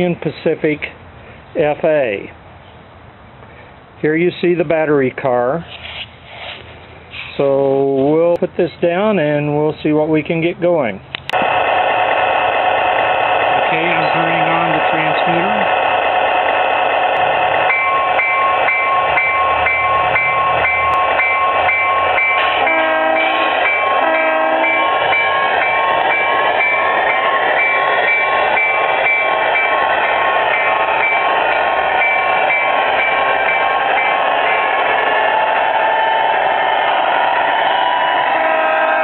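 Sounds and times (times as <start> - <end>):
model locomotive diesel engine sounds: 0.0 - 39.0
high whine: 11.3 - 39.0
short horn blasts: 22.6 - 24.9, 38.3 - 39.0.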